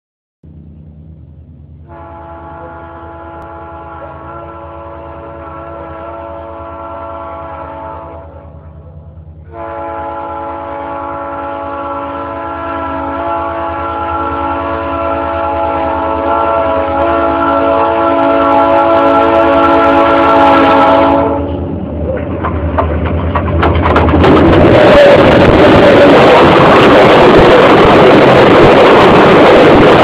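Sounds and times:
low engine rumble: 0.4 - 15.7, 19.6 - 30.0
locomotive air horn blasts: 1.8 - 21.6.

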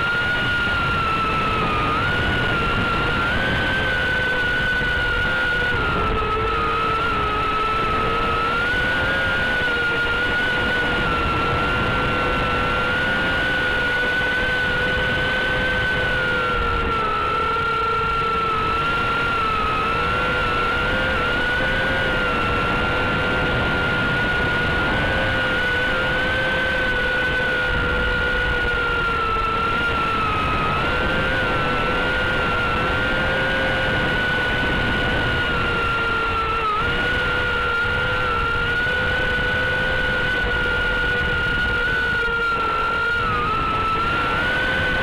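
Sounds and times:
quadcopter motors whining: 0.0 - 45.0.

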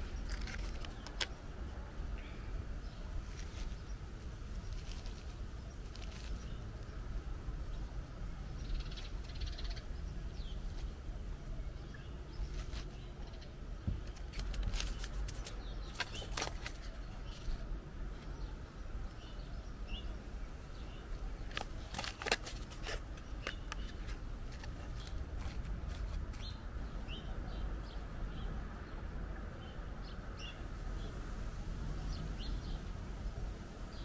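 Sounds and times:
paper seed packet crinkling: 0.0 - 1.3, 4.5 - 6.6, 12.5 - 13.0, 14.0 - 17.6, 21.3 - 26.5
low breeze rumble: 0.0 - 34.0
faint bird calls: 7.8 - 10.9.

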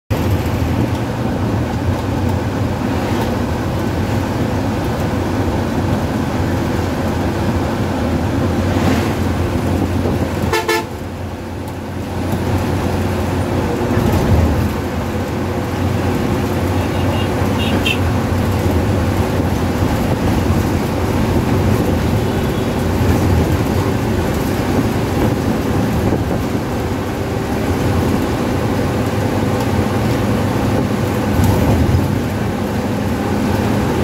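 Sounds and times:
bus engine and road noise: 0.1 - 34.0
horn blast: 10.5 - 11.0.

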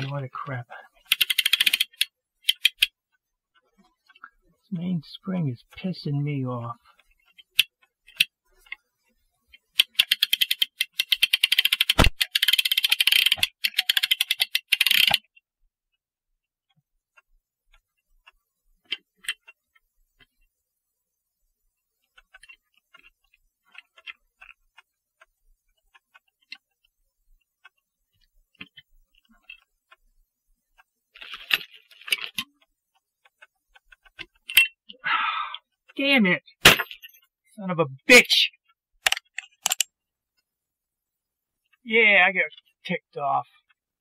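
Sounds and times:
ratchet clicking: 1.1 - 2.9, 9.7 - 15.2.

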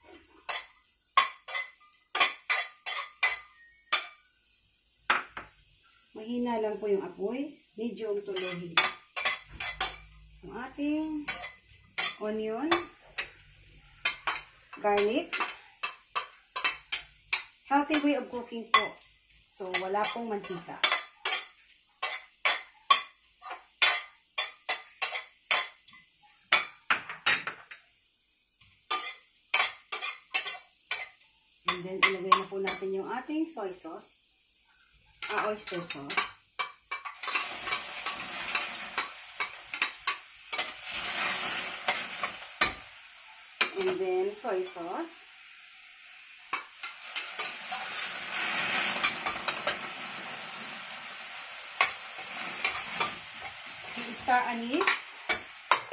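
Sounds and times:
sauce sizzling in a hot pan: 0.0 - 55.9
metal spatula scraping pan: 35.2 - 42.8, 46.5 - 49.9
bowl and spoon clinking on pan: 48.9 - 49.8, 54.8 - 55.9.

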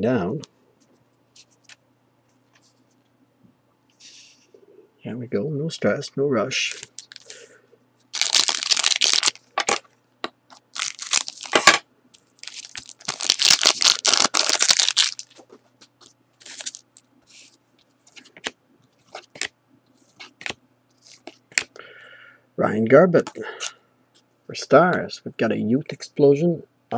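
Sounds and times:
wrapper tearing and crinkling: 8.1 - 9.8, 10.6 - 15.4, 16.4 - 17.0
cards rustling and clicking: 10.5 - 21.8.

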